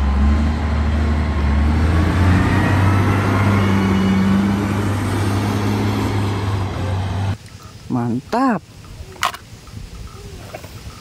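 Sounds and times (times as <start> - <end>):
wheel loader diesel engine: 0.0 - 7.4.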